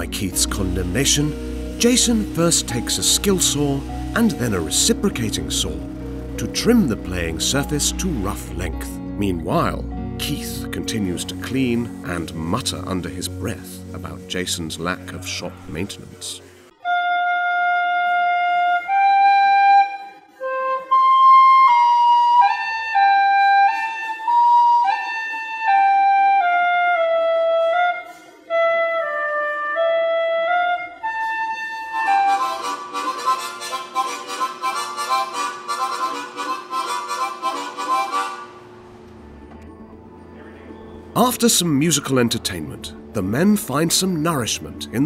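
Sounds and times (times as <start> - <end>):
harmonica chugging chords: 0.0 - 15.9, 28.5 - 39.4.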